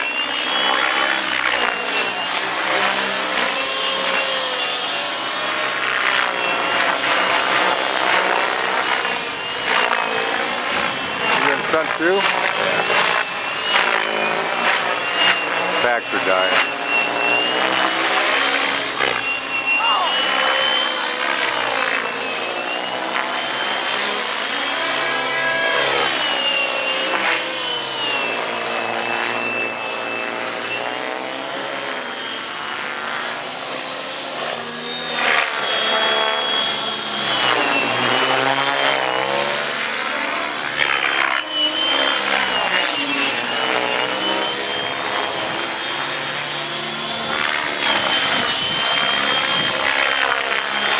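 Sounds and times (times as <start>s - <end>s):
motor and gear whine: 0.0s - 50.9s
rotor blade noise: 0.0s - 50.9s.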